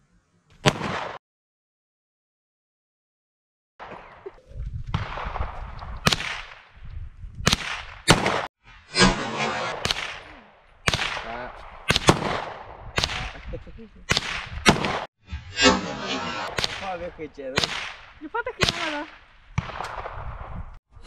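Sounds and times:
pistol shots echoing: 0:10.8 - 0:13.4, 0:17.6 - 0:20.2.

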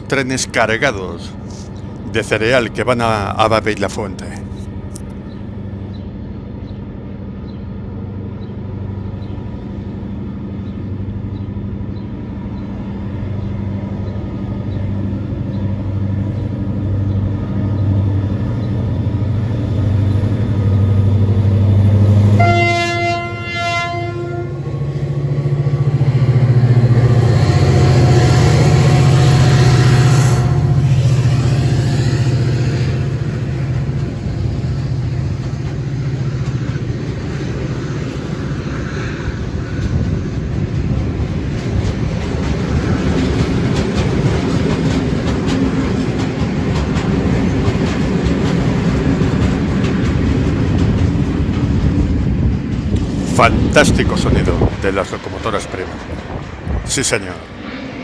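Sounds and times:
diesel locomotive engine drone: 0:00.0 - 0:58.0
train chord horn: 0:22.1 - 0:24.8, 0:27.2 - 0:32.2.

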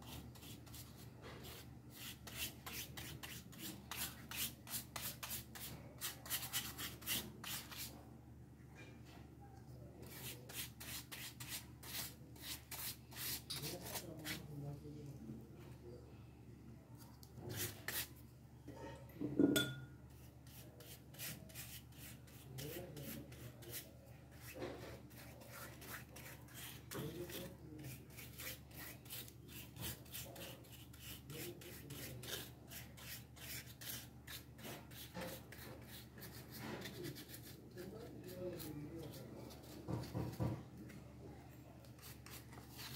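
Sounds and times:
paintbrush scrubbing on wood: 0:20.4 - 0:40.5.

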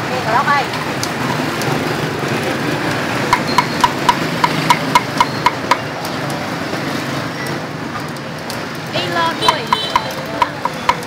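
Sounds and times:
steady background noise: 0:00.0 - 0:11.0
quick ringing knocks: 0:03.3 - 0:05.8.

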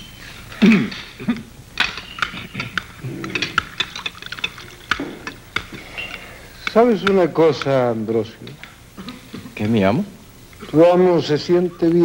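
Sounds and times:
dishes and glasses clinking: 0:00.0 - 0:07.8.

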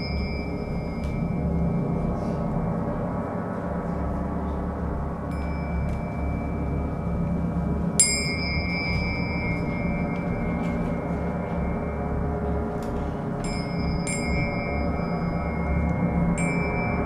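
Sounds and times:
small high-pitched bell strikes: 0:00.0 - 0:01.9, 0:05.3 - 0:12.4, 0:13.4 - 0:17.0
shimmering gong-like drone: 0:00.0 - 0:17.0.

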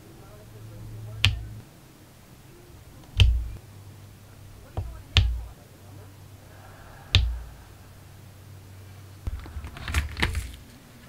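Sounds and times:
drill pen tapping with dull thud: 0:03.1 - 0:03.6, 0:04.7 - 0:05.5, 0:07.2 - 0:07.4.

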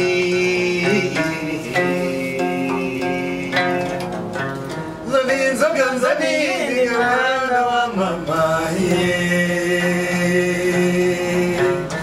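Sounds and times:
man singing in chant-like style: 0:00.0 - 0:04.0, 0:05.0 - 0:12.0
plucked trough zither: 0:00.0 - 0:07.2.

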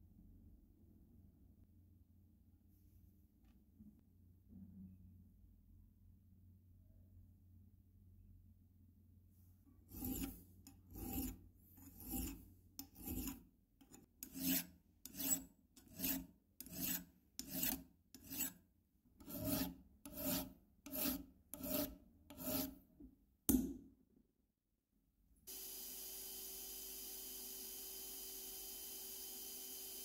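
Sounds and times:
metal file rasping on metal: 0:09.8 - 0:18.6, 0:19.2 - 0:22.8.

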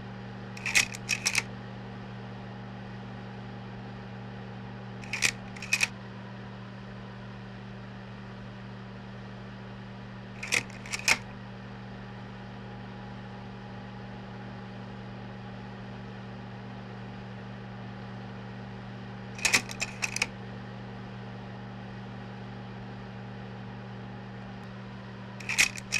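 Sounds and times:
slide projector humming: 0:00.6 - 0:01.5, 0:05.0 - 0:05.9, 0:10.4 - 0:11.3, 0:19.4 - 0:20.3, 0:25.4 - 0:25.9
slide-change mechanism clicking: 0:00.6 - 0:01.5, 0:05.0 - 0:05.9, 0:10.4 - 0:11.3, 0:19.4 - 0:20.3, 0:25.4 - 0:25.9.

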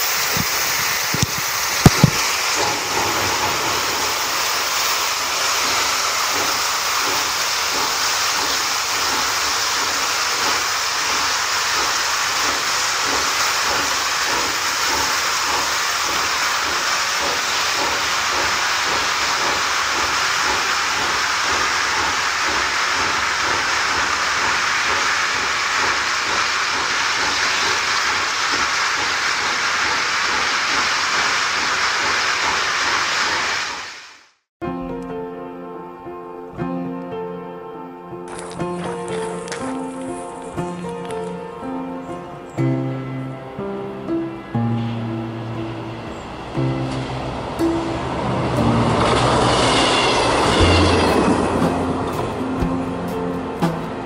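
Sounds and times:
locomotive exhaust beat: 0:00.0 - 0:33.9, 0:45.0 - 0:54.0
steam hissing: 0:00.0 - 0:34.4, 0:44.6 - 0:54.0.

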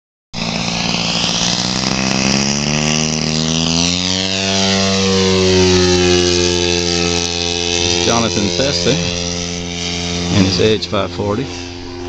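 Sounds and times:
model plane engine drone: 0:00.4 - 0:12.0.

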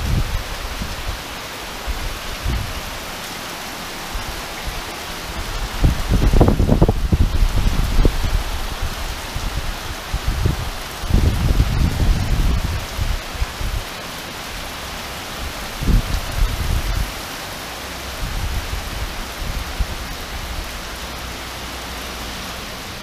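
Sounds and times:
low thunder rumbles: 0:00.0 - 0:01.2, 0:05.3 - 0:13.8
heavy rain hissing: 0:00.0 - 0:23.0.

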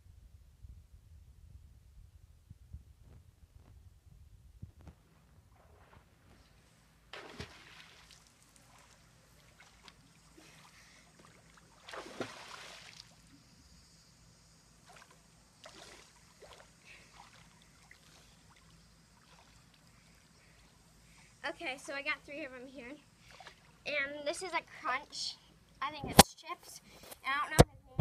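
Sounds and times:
loud splash: 0:07.1 - 0:08.9, 0:11.8 - 0:13.1
swimmer splashing in pool: 0:07.2 - 0:13.2.

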